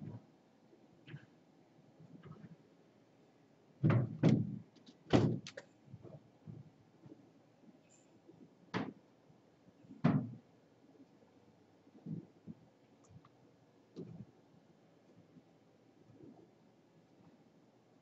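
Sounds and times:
dull knocks: 3.8s - 5.5s.

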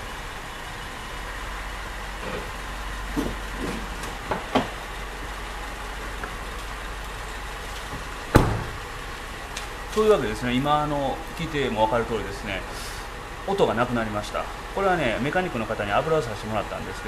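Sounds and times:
car engine idling: 0.0s - 17.0s
car door shutting: 3.1s - 4.8s, 7.9s - 8.9s.

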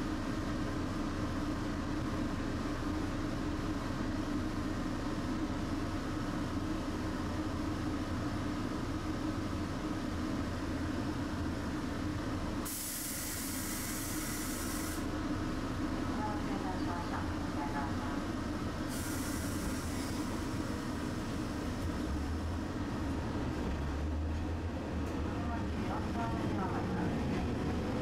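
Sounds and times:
streetcar motor and wheels rumbling: 0.0s - 28.0s
sharp hiss of air: 12.6s - 15.1s, 18.9s - 20.4s.

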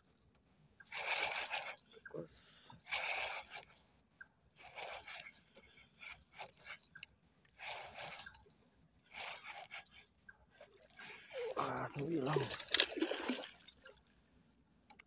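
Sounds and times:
fishing reel clicks: 12.2s - 14.0s.

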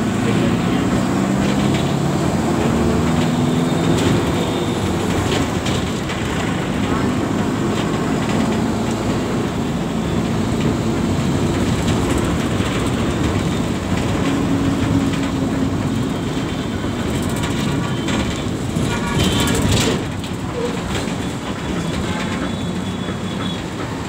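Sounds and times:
bus body rattling: 0.0s - 24.0s
bus engine hum: 0.0s - 24.0s
road rumble: 0.0s - 24.0s.

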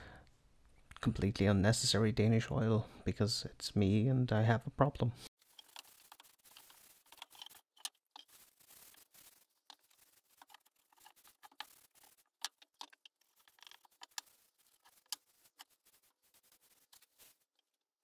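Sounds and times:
cloth rubbing on wood: 5.4s - 17.6s.

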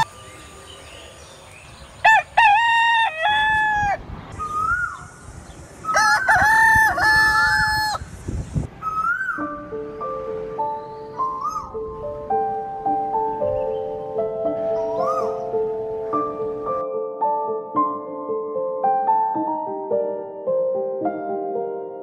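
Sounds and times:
rooster crowing: 2.0s - 4.0s, 5.8s - 8.1s
small bird calling: 4.4s - 6.2s, 10.8s - 11.8s, 14.7s - 15.6s.

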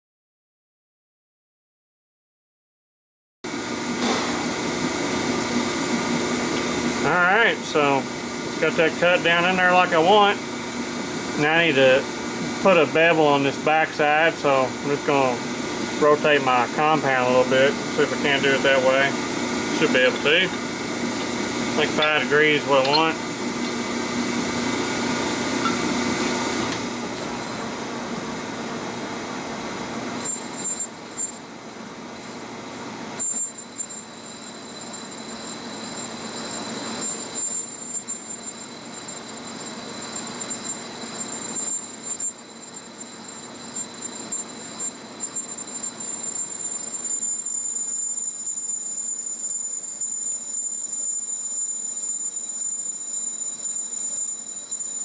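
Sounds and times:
metal lathe running: 3.5s - 55.0s
high-pitched squeal from cutting: 33.2s - 55.0s.

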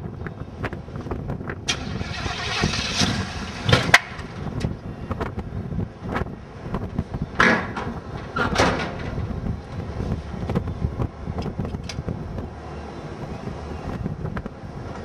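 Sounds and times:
car engine running high and rough: 0.6s - 8.3s.

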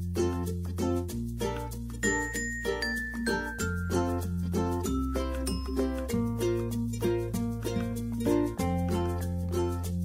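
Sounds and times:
high melody line: 2.0s - 9.2s.

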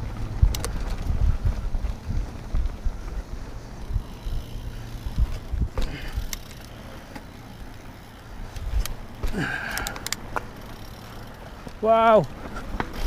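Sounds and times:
wind on microphone: 0.0s - 6.3s
bike clicking and rattling: 0.0s - 13.0s
tyres rumbling on dirt: 0.0s - 13.0s.

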